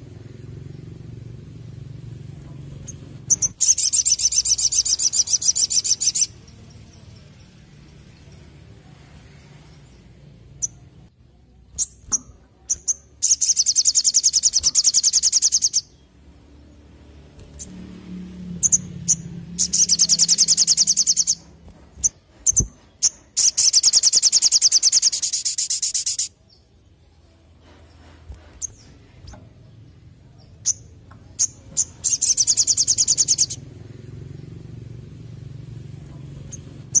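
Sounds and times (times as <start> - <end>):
sunbird singing rapid trills: 2.7 - 28.0, 28.6 - 37.0
sharp bird chip notes: 2.8 - 6.6, 11.8 - 16.1, 18.6 - 26.4, 30.6 - 33.6.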